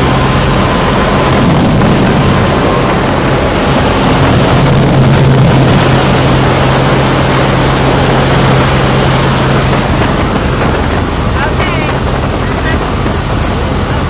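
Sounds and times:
aircraft engine and propeller in cabin: 0:00.0 - 0:14.0.

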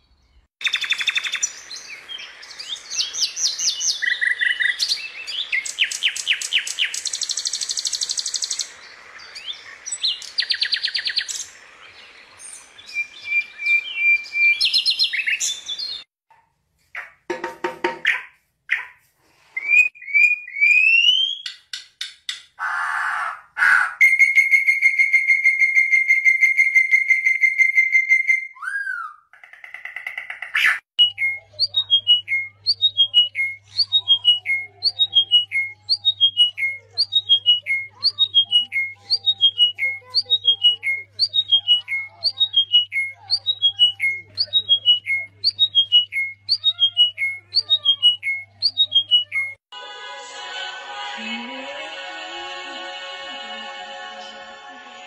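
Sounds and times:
songbird singing whistled notes: 0:00.0 - 0:16.1, 0:19.6 - 0:21.8, 0:24.0 - 0:29.3, 0:31.0 - 0:49.6
oriole singing: 0:49.7 - 0:55.0.

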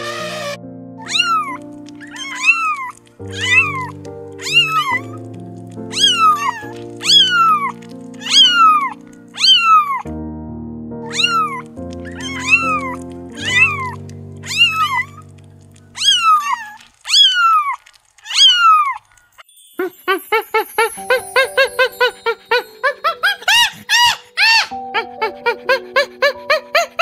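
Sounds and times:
background music: 0:00.0 - 0:16.4, 0:19.5 - 0:27.0
kittens mewing: 0:00.2 - 0:05.1, 0:05.9 - 0:10.0, 0:11.1 - 0:15.2, 0:16.0 - 0:19.0
short tinkling notes: 0:19.3 - 0:25.0.

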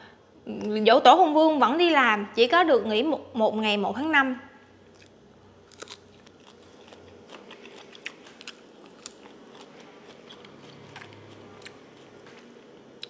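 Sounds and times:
person chewing crunchy food: 0:04.9 - 0:13.0.

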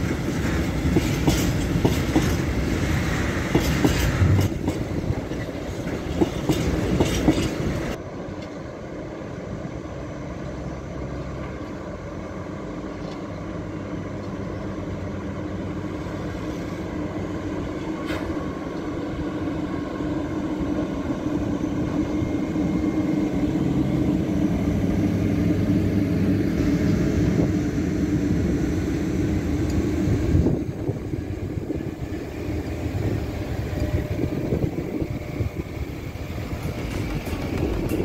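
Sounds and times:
train wheels knocking on track: 0:00.0 - 0:08.0, 0:36.3 - 0:38.0
locomotive motors humming: 0:00.0 - 0:38.0.

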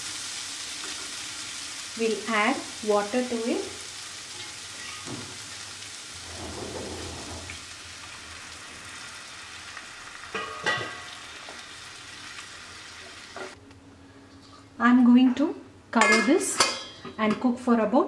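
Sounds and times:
vegetables sizzling in a pan: 0:00.0 - 0:13.6.

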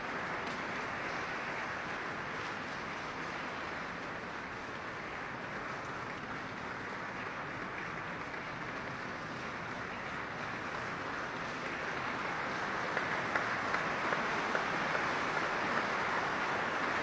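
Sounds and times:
audience applauding: 0:00.0 - 0:17.0
single claps: 0:10.0 - 0:17.0.

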